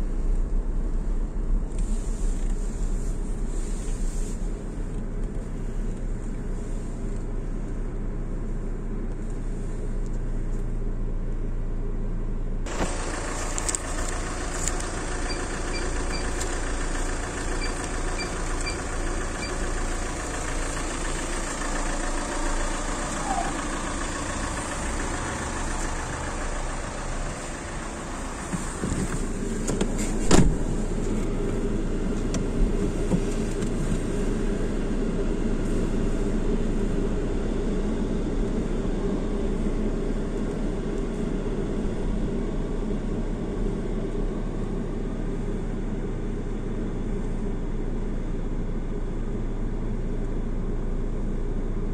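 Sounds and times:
car engine idling: 0.0 - 51.9
outside noise: 0.0 - 51.9
thump: 28.5 - 30.7.

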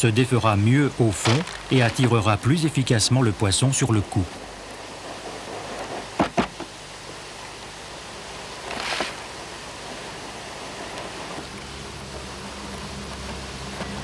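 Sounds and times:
steady hiss: 0.0 - 14.0
gritty rustle of sieved bait: 8.6 - 9.3.

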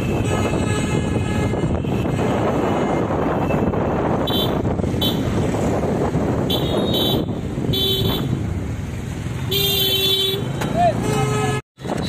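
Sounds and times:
wind rushing over microphone: 0.0 - 9.5, 11.8 - 12.0
motorcycle running: 0.0 - 11.2
horn toots: 6.4 - 8.4.

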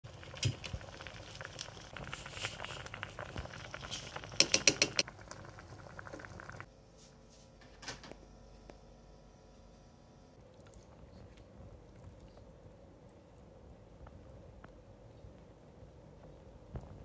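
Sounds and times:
noodle soup boiling and bubbling: 0.0 - 6.8.

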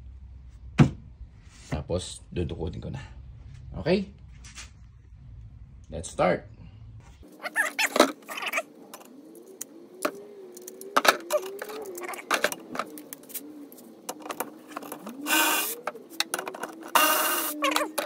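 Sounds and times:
cordless ratchet whirring: 15.1 - 15.9, 16.9 - 17.8.

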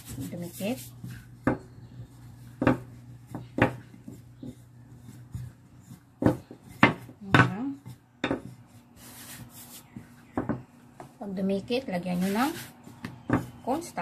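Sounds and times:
rolling pin rolling dough: 0.0 - 14.0
rolling pin knocking on table: 2.6 - 4.6, 5.3 - 8.6, 10.0 - 11.1, 13.0 - 13.6.

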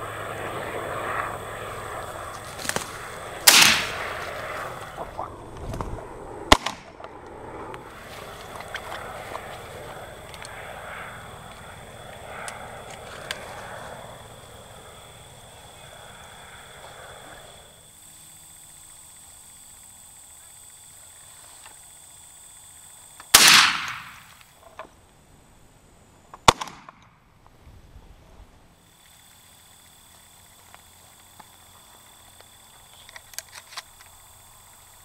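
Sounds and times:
shotgun blasts: 3.4 - 4.6, 6.5 - 7.0, 23.3 - 24.3, 26.4 - 27.1.

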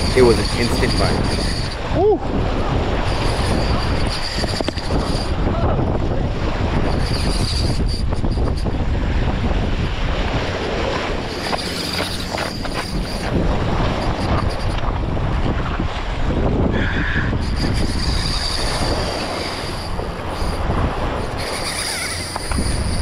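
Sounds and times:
wind buffeting microphone: 0.0 - 23.0
waves washing against rocks: 8.7 - 23.0.

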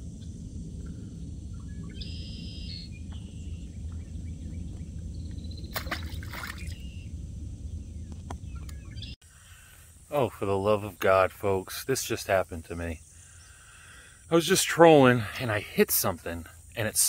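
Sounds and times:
steady low rumble: 0.0 - 14.2
water splash: 5.7 - 7.0.

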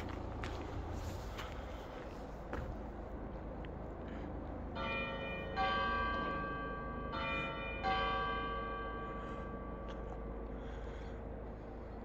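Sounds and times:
church bells ringing: 4.7 - 10.9.

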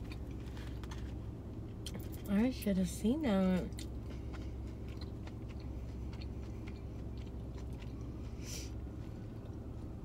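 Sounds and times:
crisp crunch: 0.0 - 1.2
low hum: 0.0 - 10.0
wet chewing clicks: 3.7 - 8.1.

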